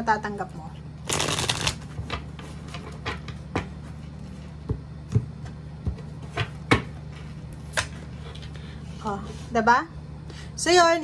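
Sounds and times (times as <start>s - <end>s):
cards riffling: 1.0s - 1.8s.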